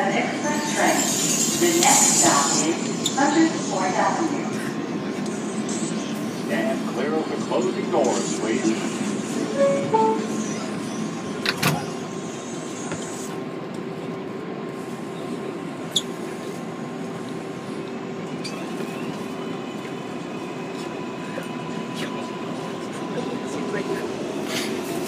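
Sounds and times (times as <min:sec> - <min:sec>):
train cabin noise: 0:00.0 - 0:25.0
subway doors closing with a knock: 0:09.4 - 0:12.2.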